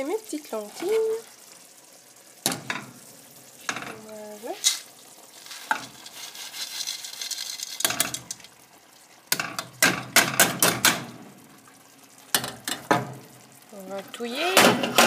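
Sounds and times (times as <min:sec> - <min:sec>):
lentils sliding into pot: 0:04.2 - 0:08.4
colander knocking against pot: 0:09.4 - 0:11.1.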